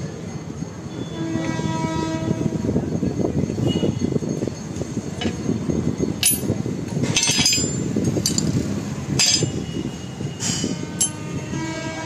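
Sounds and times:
steel clinking on worktable: 6.2 - 8.6, 9.2 - 9.7, 10.4 - 11.2.

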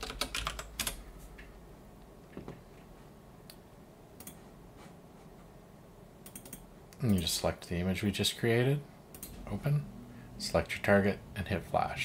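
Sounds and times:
computer keyboard keystrokes: 0.0 - 1.0, 6.2 - 7.3.

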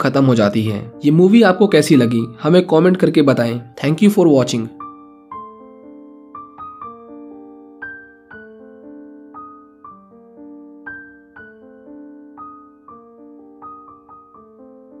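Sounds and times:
slow gentle solo piano: 4.7 - 15.0.

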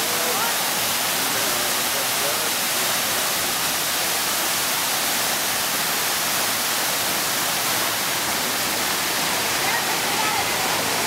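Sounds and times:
fountain water splashing: 0.0 - 11.0.

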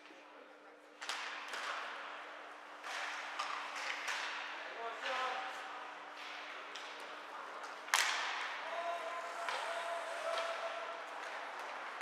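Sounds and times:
hockey stick and skate clicks: 1.0 - 8.6, 9.3 - 12.0
puck impact crack: 2.8 - 4.5, 6.2 - 8.6.

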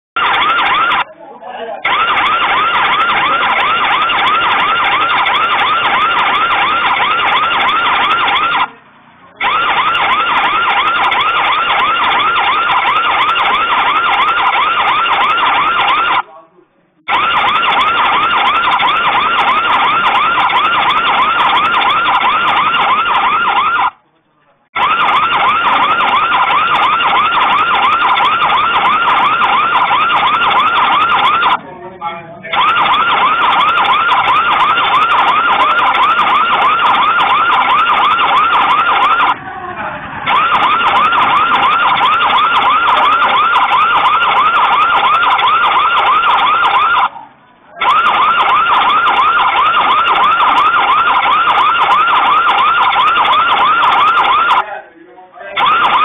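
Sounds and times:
siren warbling: 0.2 - 1.1, 1.8 - 8.7, 9.4 - 16.3, 17.1 - 24.0, 24.8 - 31.7, 32.5 - 47.2, 47.8 - 54.8, 55.6 - 56.0.

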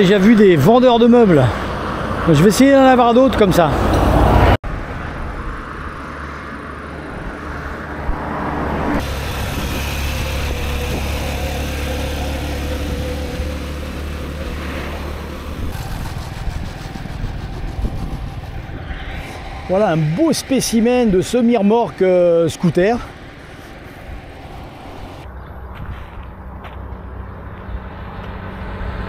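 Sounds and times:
traffic passing: 0.0 - 29.0.

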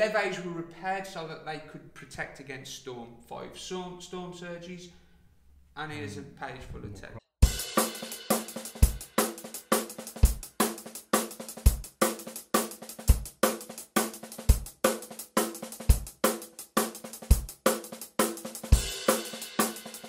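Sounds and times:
music with steady drum beat: 7.4 - 20.0.

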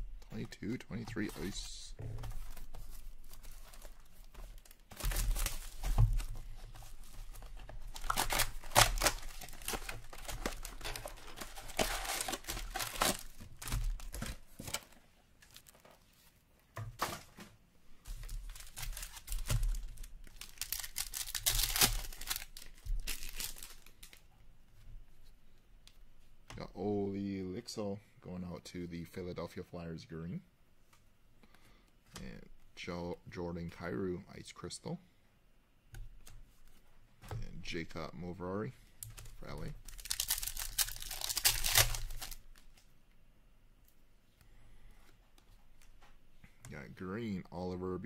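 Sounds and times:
foil packs rustling: 1.0 - 16.2, 18.1 - 24.2, 39.3 - 42.7
plastic wrap tearing and crinkling: 2.5 - 15.9, 18.1 - 24.2, 39.2 - 42.8.

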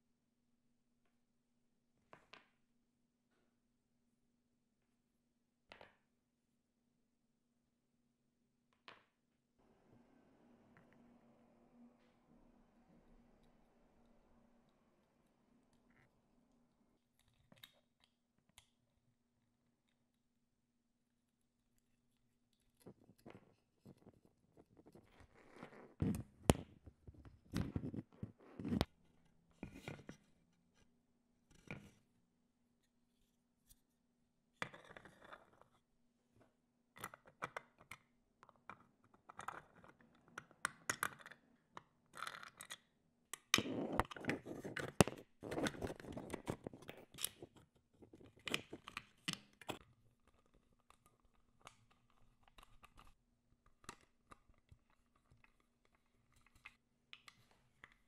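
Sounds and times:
faint steady hum: 9.6 - 17.0.

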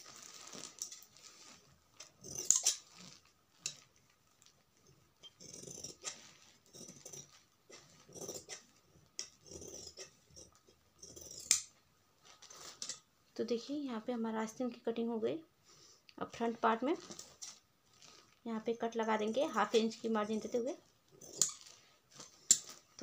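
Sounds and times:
cloth rustling: 0.0 - 5.1, 16.8 - 23.0.

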